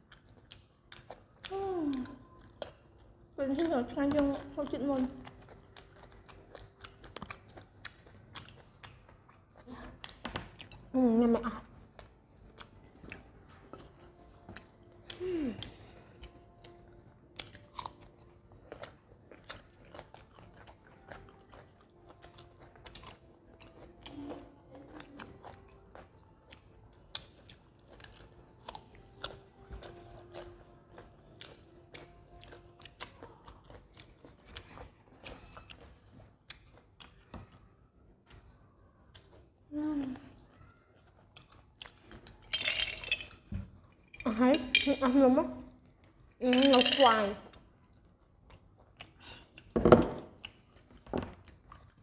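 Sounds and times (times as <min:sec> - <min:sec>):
wet chewing mouth sounds: 0:00.0 - 0:10.9, 0:11.7 - 0:39.6, 0:40.2 - 0:42.4, 0:47.6 - 0:52.0
person humming: 0:15.1 - 0:15.9.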